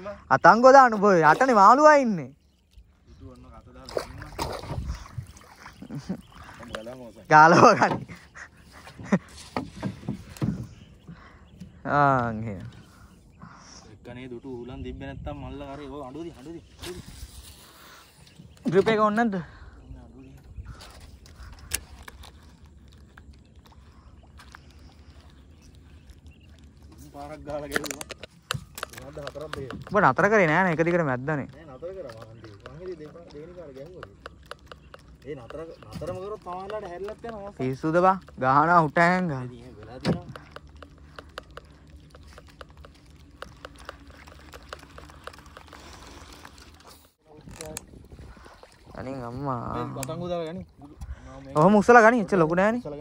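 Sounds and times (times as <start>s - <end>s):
rippling water: 0.0s - 14.6s, 15.5s - 53.0s
wind rumble: 2.8s - 5.6s.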